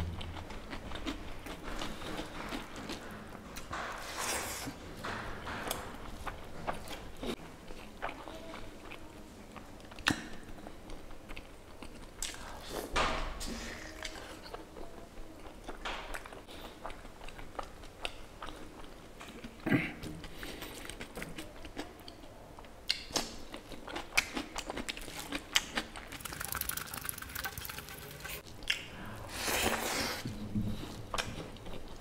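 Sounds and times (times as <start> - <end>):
chewing and biting food: 0.0 - 4.7, 22.9 - 30.2.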